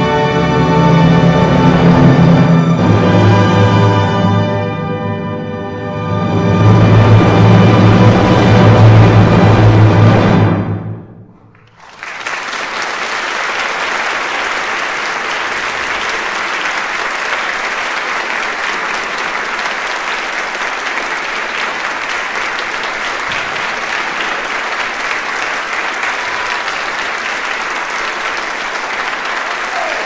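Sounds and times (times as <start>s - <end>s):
audience applauding: 11.4s - 30.0s.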